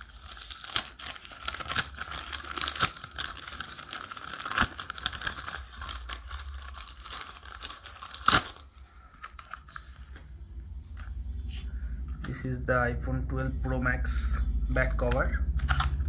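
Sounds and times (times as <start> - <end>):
plastic wrapper crinkling and tearing: 0.0 - 10.3, 15.5 - 16.0.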